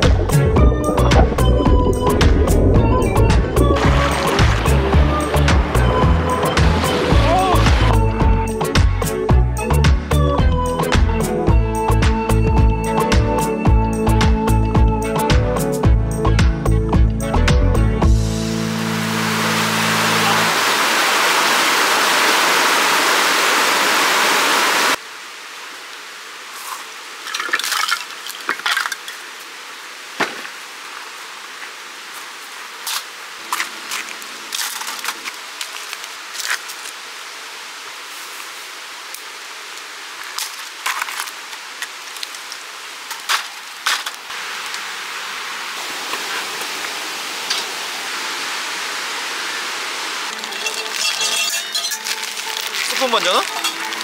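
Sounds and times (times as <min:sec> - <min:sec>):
rushing stream water: 0:00.0 - 0:15.6, 0:18.0 - 0:54.0
steady hiss: 0:18.2 - 0:27.4, 0:28.0 - 0:54.0.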